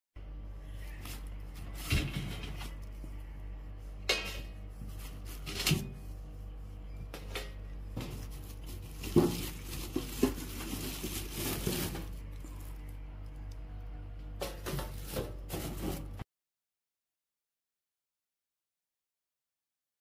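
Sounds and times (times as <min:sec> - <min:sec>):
steady low hum: 0:00.2 - 0:16.2
plastic wrap rustling: 0:08.0 - 0:13.0, 0:14.4 - 0:16.2.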